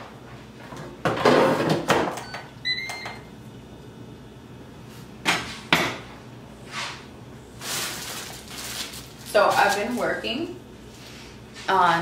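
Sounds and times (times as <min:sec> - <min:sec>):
things clattering on kitchen counter: 0:00.6 - 0:02.3.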